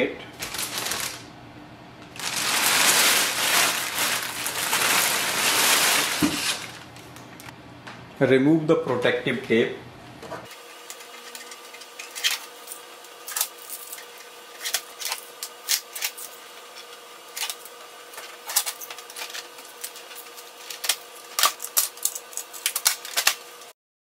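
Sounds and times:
packing tape peeling off plastic: 0.4 - 1.2, 2.2 - 7.5, 18.2 - 23.7.

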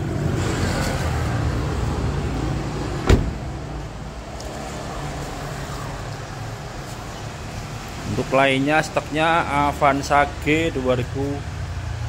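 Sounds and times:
sharp thump: 3.0 - 3.5.

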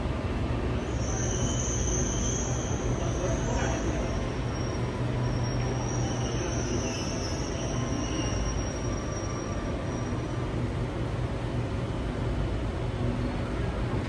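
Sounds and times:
train rumble in tunnel: 0.0 - 14.0
high-pitched wheel squeal: 0.7 - 10.7.

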